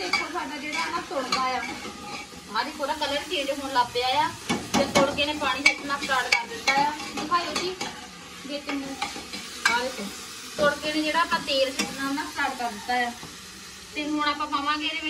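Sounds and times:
ladle scraping pot: 0.0 - 2.4
food sizzling: 0.0 - 15.0.

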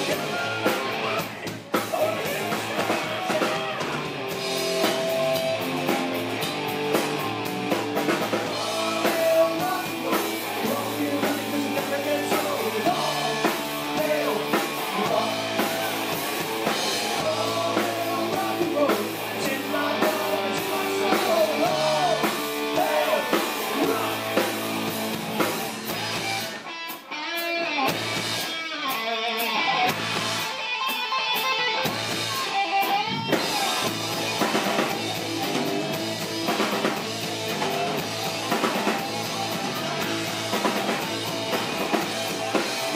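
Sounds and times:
man singing: 0.0 - 4.0, 8.4 - 25.0
live rock band playing: 0.0 - 42.9.

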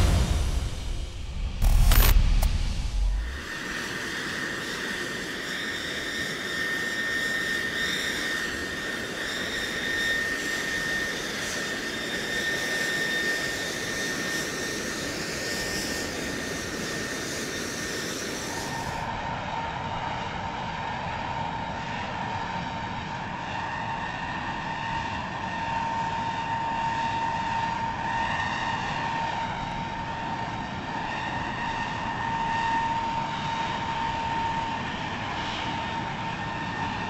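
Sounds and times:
low boom: 0.0 - 3.4
rushing jet noise: 0.0 - 19.0
turbine whine: 0.0 - 37.0.

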